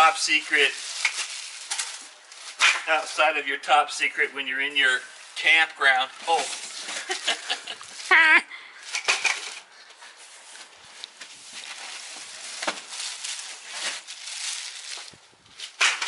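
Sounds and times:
rustling and scraping cardboard: 0:10.2 - 0:15.8.

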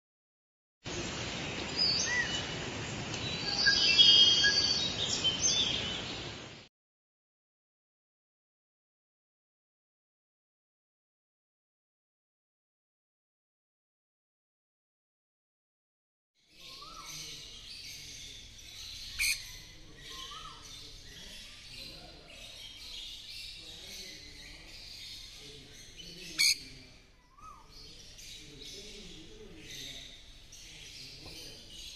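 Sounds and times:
birds chirping: 0:00.9 - 0:06.6, 0:16.5 - 0:31.9
steady forest hiss: 0:00.9 - 0:06.7, 0:16.6 - 0:31.9
bird chirps and whistles: 0:03.4 - 0:05.8.

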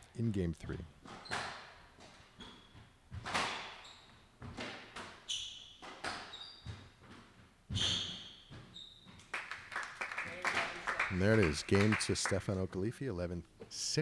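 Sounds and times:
squash ball hitting rackets and walls: 0:01.0 - 0:09.3
shoes squeaking on hardwood: 0:01.1 - 0:09.3
people clapping: 0:09.2 - 0:12.8.

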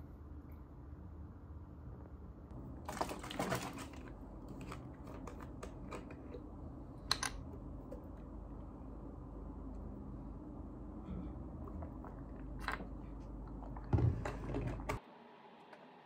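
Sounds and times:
plastic bottle crackling: 0:02.8 - 0:05.7.

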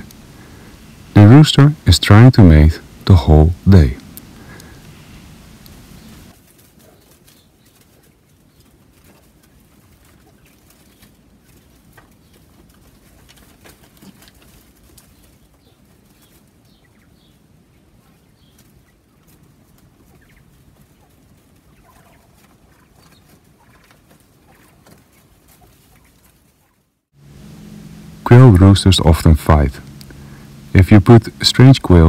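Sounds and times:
quail calling: 0:04.0 - 0:26.9
feet rustling in wood shavings: 0:04.2 - 0:32.0
low background rumble: 0:27.2 - 0:32.0.

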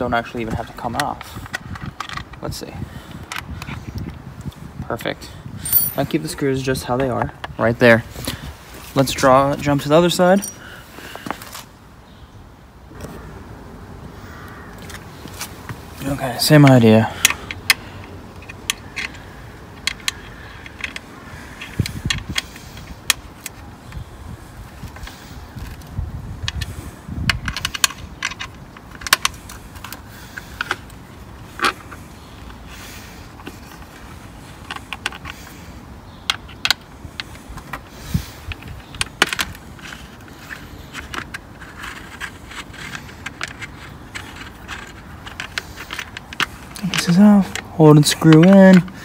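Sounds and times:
allen key clicking and scraping: 0:16.6 - 0:24.0, 0:24.9 - 0:32.6, 0:36.2 - 0:49.0.

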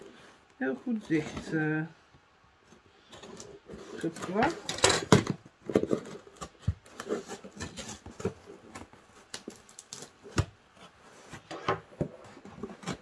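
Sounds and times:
tape and cardboard scraping: 0:03.0 - 0:13.0.

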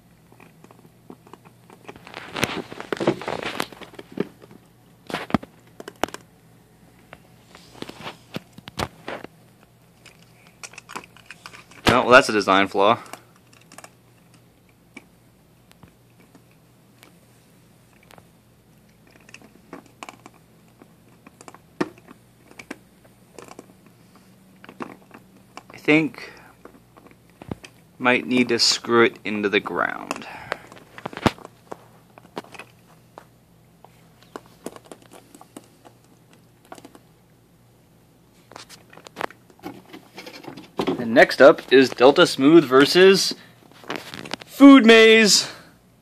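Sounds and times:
cat chewing plastic: 0:18.9 - 0:23.9.

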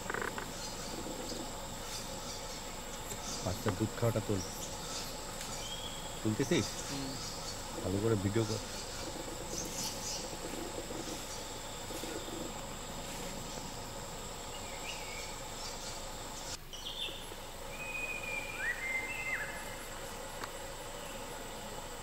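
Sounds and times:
high insect drone: 0:00.0 - 0:22.0
bird whistled calls: 0:16.8 - 0:19.8.

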